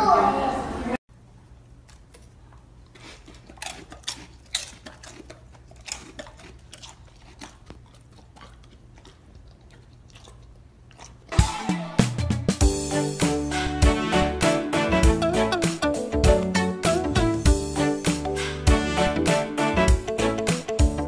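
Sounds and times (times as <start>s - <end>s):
puppy chewing: 1.7s - 11.5s
loud music: 11.4s - 21.0s.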